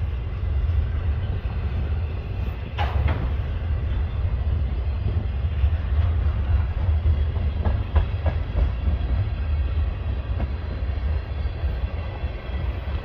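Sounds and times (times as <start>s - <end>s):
train wheels rumbling on rails: 0.0s - 13.0s
wheels clicking over rail joints: 2.7s - 3.6s.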